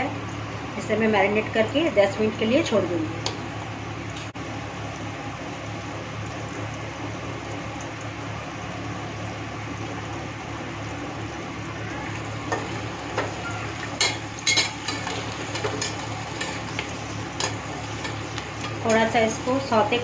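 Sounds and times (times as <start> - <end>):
vegetables sizzling in hot oil: 10.2 - 20.0.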